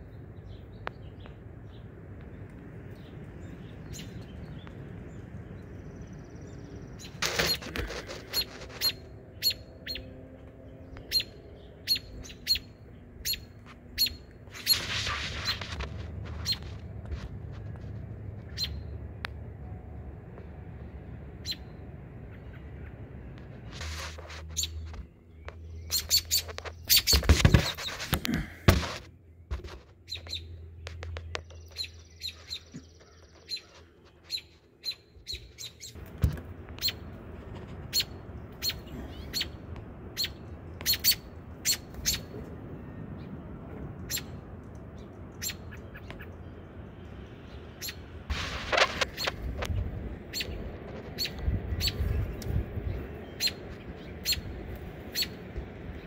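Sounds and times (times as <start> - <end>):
nestlings peeping: 0.0 - 19.6, 20.3 - 56.0
loud thumps: 27.1 - 29.6.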